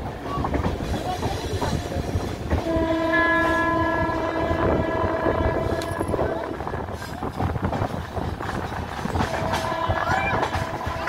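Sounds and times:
train rumble and wheel clatter: 0:00.0 - 0:11.0
locomotive horn blast: 0:02.6 - 0:06.6, 0:09.2 - 0:11.0.

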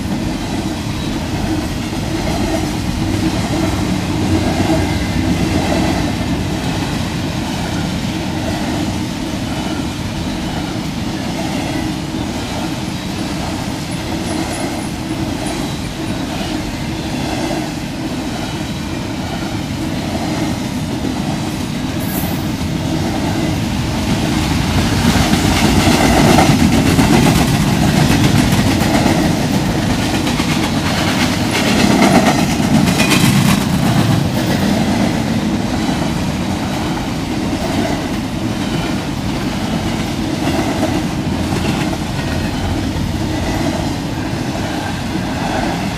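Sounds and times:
freight train wheels rumbling: 0:00.0 - 0:45.9
wheels clicking over rail joints: 0:24.4 - 0:43.7.

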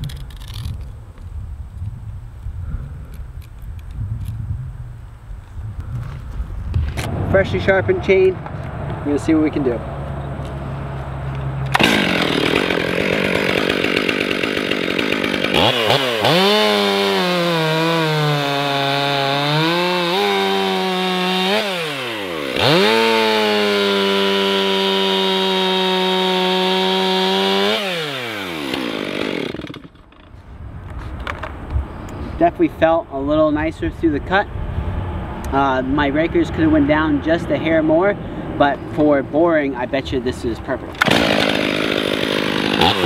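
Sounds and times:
chainsaw cutting log: 0:11.7 - 0:30.4, 0:40.9 - 0:43.0.

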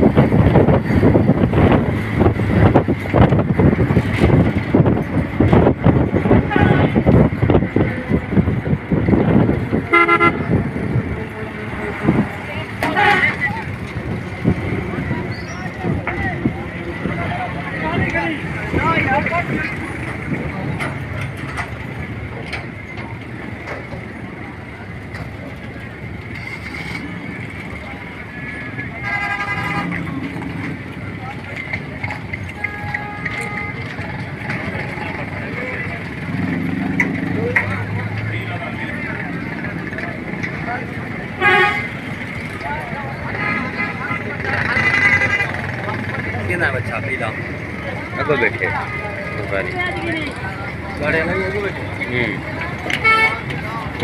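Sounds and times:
wind buffeting microphone: 0:00.0 - 0:24.4
road noise: 0:00.0 - 0:54.0
truck engine: 0:00.0 - 0:54.0
metal rails rattling and clanking: 0:15.9 - 0:24.4.

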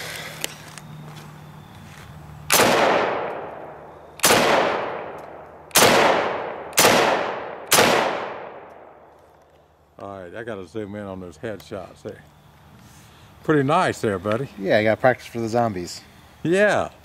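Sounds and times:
rifle shots: 0:02.5 - 0:09.0.

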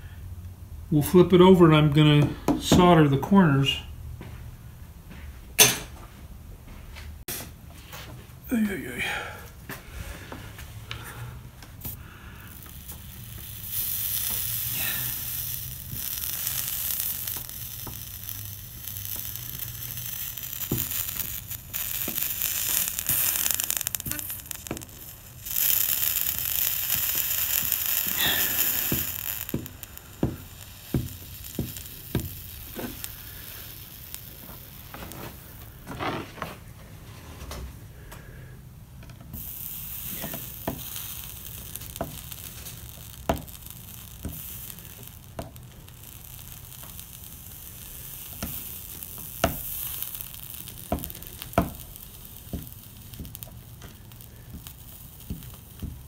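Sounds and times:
solder flux sizzling: 0:09.9 - 0:37.2, 0:39.2 - 0:56.0.

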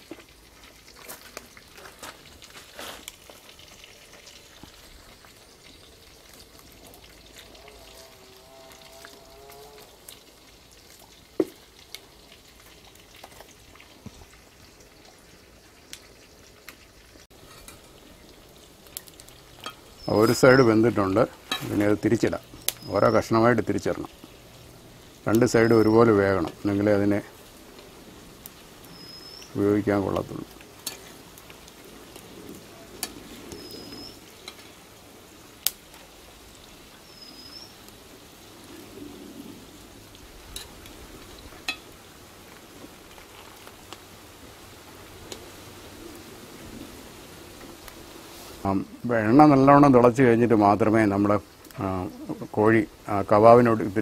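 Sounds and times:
meat deep-frying in oil: 0:00.0 - 0:54.0
bird whistle: 0:28.9 - 0:29.5, 0:33.6 - 0:34.2, 0:37.1 - 0:37.7.

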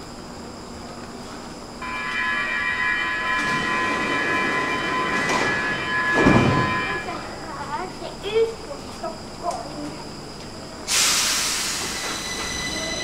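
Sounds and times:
rail noise: 0:00.0 - 0:13.0
high-pitched train squeal: 0:01.8 - 0:07.3, 0:10.9 - 0:13.0.

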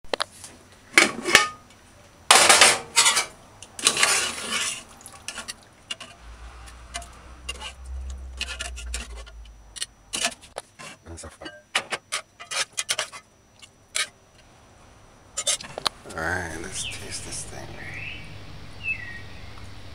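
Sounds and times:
utensils scraping a pot: 0:02.8 - 0:13.3, 0:13.9 - 0:14.2, 0:15.4 - 0:15.9.

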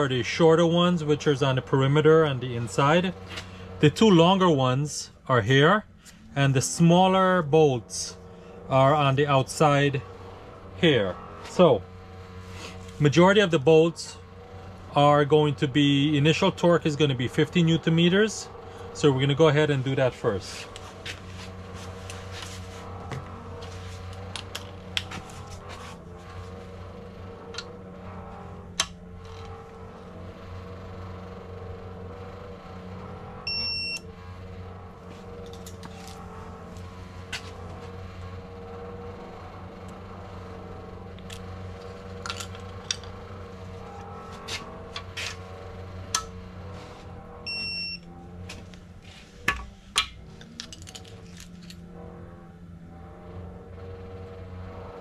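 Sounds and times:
steady low hum: 0:00.0 - 0:55.0
short high beep: 0:33.5 - 0:34.0.

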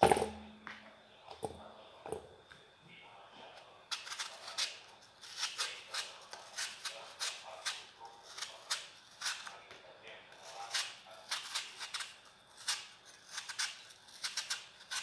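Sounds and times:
knife peeling apple: 0:03.5 - 0:15.0.

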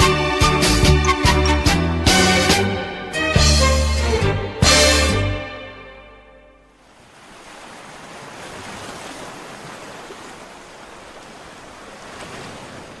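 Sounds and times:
sea waves washing: 0:06.7 - 0:13.0.

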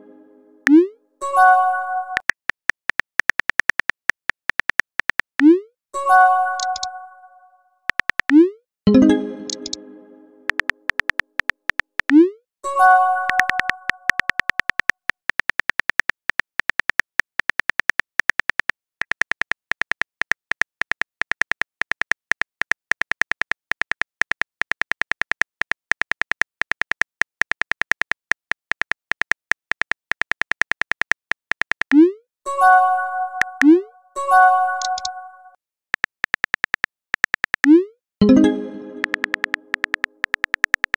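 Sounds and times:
phone keyboard clicks: 0:02.2 - 0:05.4, 0:06.6 - 0:06.9, 0:07.9 - 0:08.4, 0:09.5 - 0:09.8, 0:10.5 - 0:12.2, 0:13.3 - 0:32.0, 0:36.0 - 0:37.8, 0:39.0 - 0:40.9
message chime: 0:08.9 - 0:10.5, 0:38.2 - 0:39.8.

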